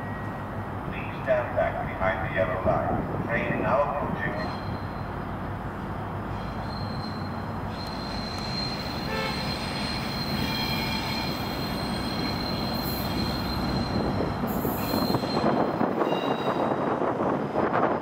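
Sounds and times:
diesel locomotive rumbling: 0:00.0 - 0:18.0
wheels squealing on rails: 0:04.2 - 0:05.4, 0:06.2 - 0:17.4.

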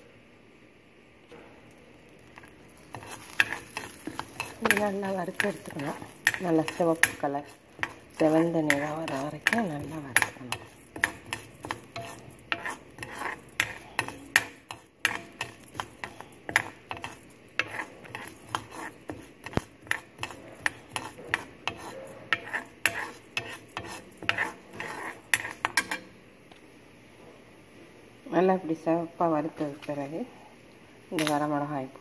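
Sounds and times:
ladle scraping iron pan: 0:02.8 - 0:26.1.

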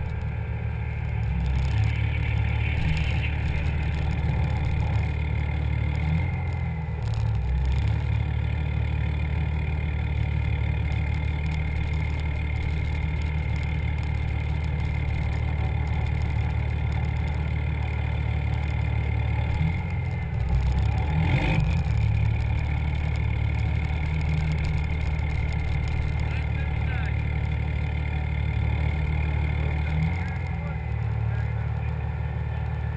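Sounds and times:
diesel engine low rumble: 0:00.0 - 0:32.9.

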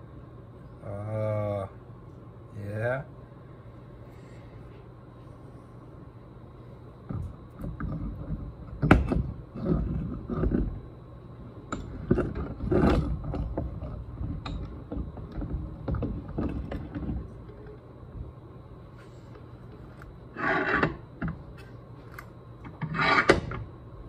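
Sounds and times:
sandpaper scraping metal: 0:20.4 - 0:20.8, 0:22.9 - 0:23.3.

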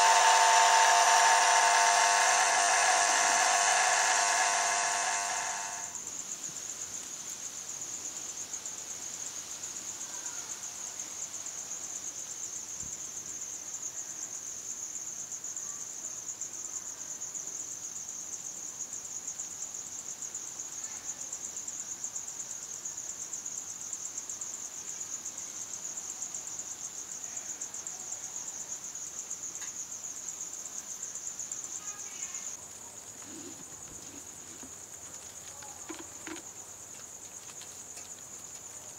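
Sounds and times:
crickets trilling: 0:00.0 - 0:38.9.

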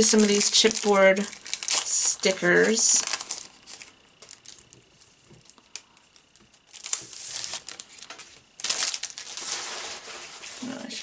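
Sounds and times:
sticker packet crinkling: 0:00.0 - 0:11.0.

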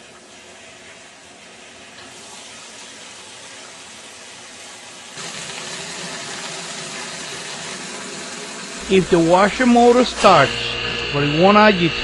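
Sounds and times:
water pouring into washer tub: 0:00.0 - 0:10.6.

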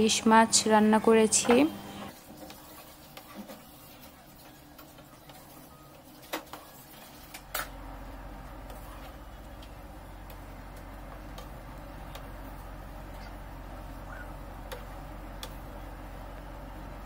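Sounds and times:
low steady hum: 0:07.3 - 0:17.0.

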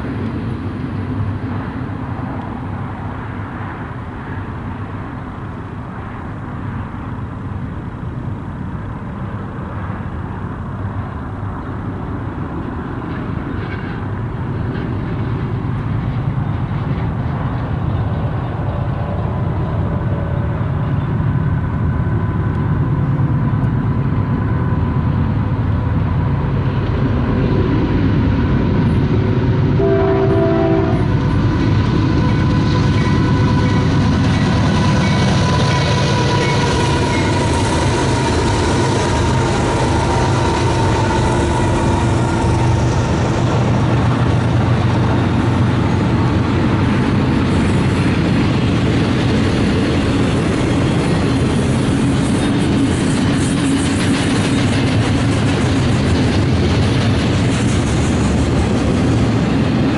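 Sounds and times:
diesel locomotives running: 0:00.0 - 0:59.9
train wheels rolling: 0:09.8 - 0:59.9
train horn blast: 0:29.8 - 0:31.2, 0:32.2 - 0:34.2.

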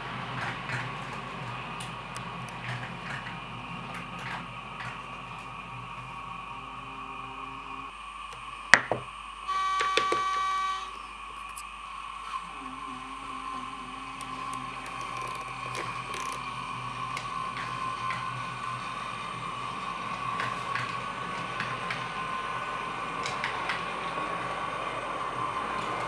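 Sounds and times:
wheels clicking over track: 0:00.0 - 0:07.9, 0:13.8 - 0:26.0
model train motor whine: 0:00.0 - 0:26.0.

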